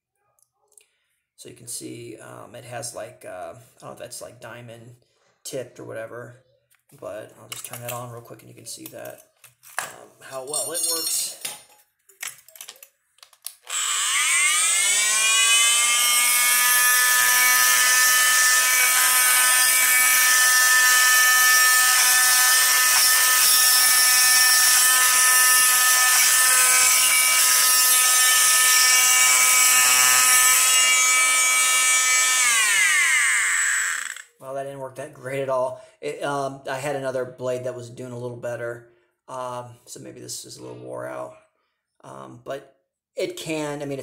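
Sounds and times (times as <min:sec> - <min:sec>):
multi-tool grinding mortar: 0:13.7 - 0:34.4.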